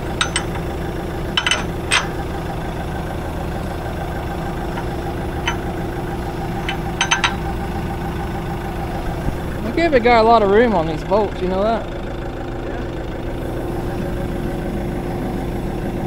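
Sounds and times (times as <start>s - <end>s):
sharp metal clinks: 0.0s - 2.4s, 4.4s - 8.0s
forklift engine idling: 0.0s - 16.0s.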